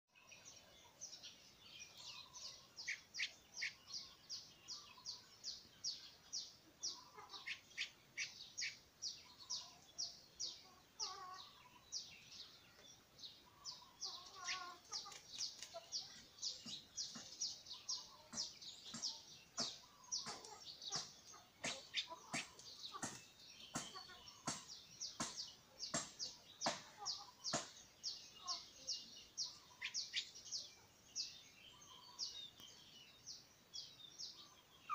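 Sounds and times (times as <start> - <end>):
bird chirping: 0.1 - 34.9.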